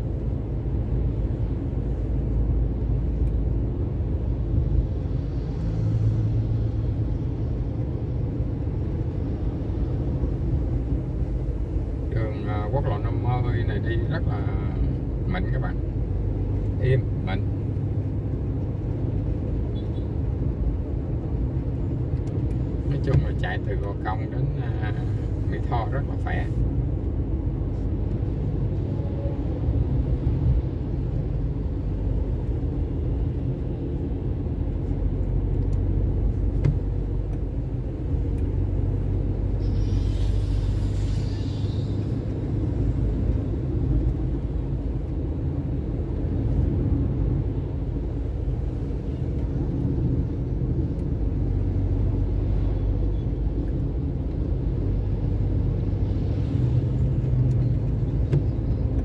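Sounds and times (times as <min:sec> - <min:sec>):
road rumble: 0:00.0 - 0:59.0
vehicle engine hum: 0:00.0 - 0:59.0
brief hiss: 0:39.6 - 0:42.1.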